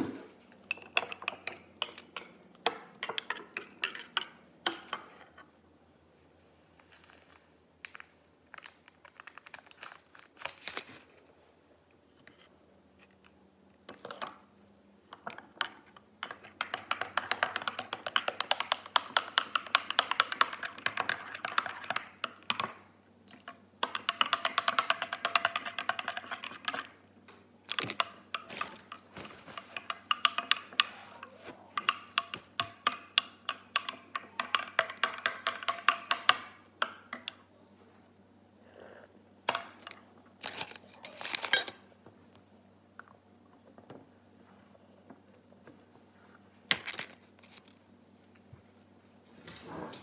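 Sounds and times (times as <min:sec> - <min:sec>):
spoon clinking in ceramic mug: 0:23.8 - 0:29.0.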